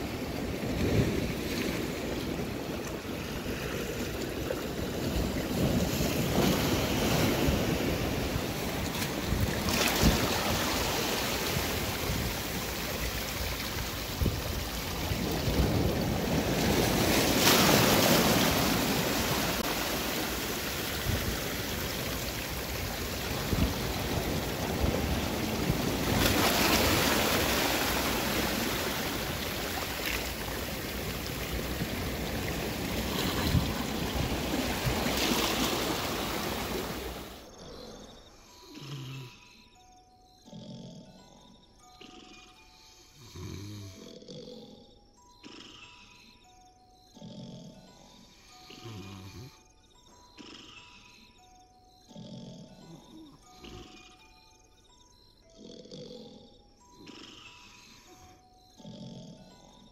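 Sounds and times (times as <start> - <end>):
waves washing over rocks: 0.0 - 37.4
wind buffeting microphone: 4.8 - 37.2.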